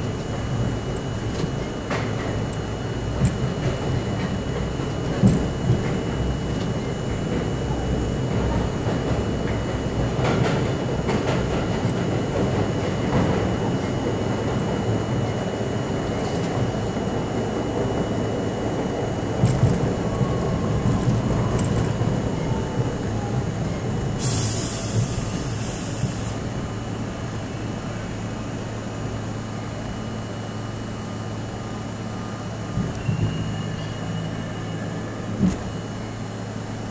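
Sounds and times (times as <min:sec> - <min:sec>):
train wheels rumbling on rails: 0:00.0 - 0:36.9
rail joint clacks: 0:08.3 - 0:15.4
air brake hiss: 0:24.2 - 0:26.4.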